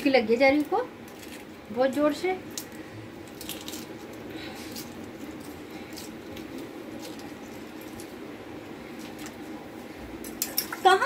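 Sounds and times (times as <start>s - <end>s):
steady low hum: 0.0s - 11.0s
egg shell crackling: 0.4s - 10.9s.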